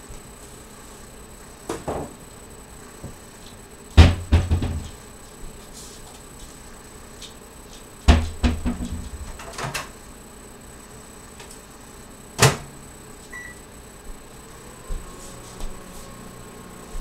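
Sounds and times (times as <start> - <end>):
faint short beep: 13.3 - 13.6.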